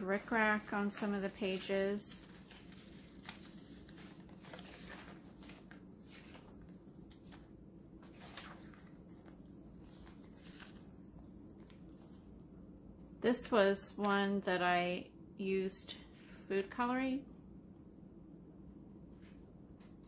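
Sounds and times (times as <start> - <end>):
paper pages rustling: 0.0 - 12.4
low room hum: 0.0 - 20.0.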